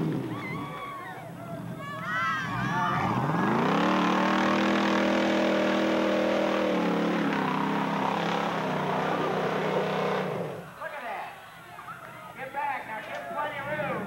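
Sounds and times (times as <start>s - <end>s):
truck engine revving: 0.0s - 0.6s, 2.4s - 10.7s.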